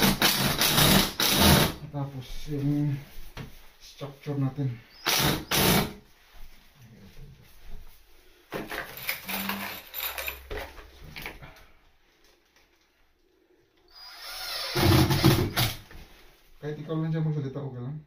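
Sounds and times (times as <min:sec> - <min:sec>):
cordless drill bursts: 0:00.0 - 0:01.8, 0:04.9 - 0:06.0, 0:13.9 - 0:15.8.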